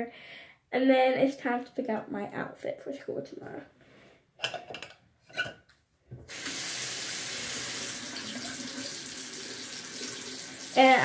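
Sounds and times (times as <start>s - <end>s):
water running into basin: 6.3s - 11.0s.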